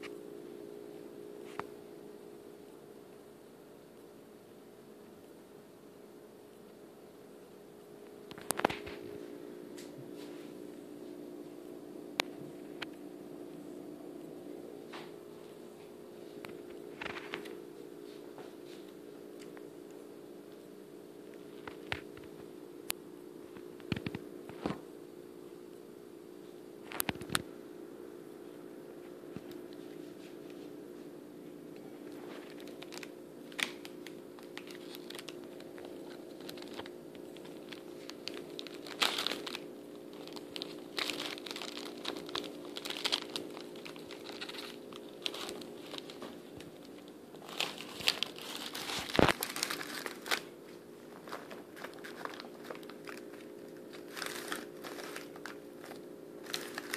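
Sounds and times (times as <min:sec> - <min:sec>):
steady low hum: 0:00.0 - 0:56.9
paper rustling: 0:16.4 - 0:17.6, 0:32.1 - 0:56.9
hamster gnawing bread: 0:32.0 - 0:56.9.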